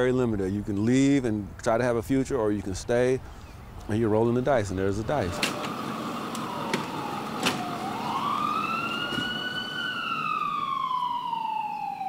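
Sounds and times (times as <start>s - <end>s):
emergency siren wailing: 5.0s - 12.0s.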